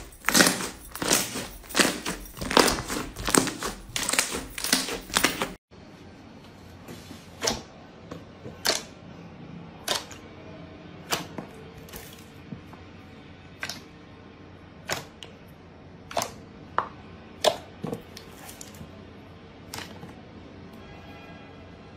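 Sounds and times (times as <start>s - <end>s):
slime squishing and crackling: 0.0s - 5.6s.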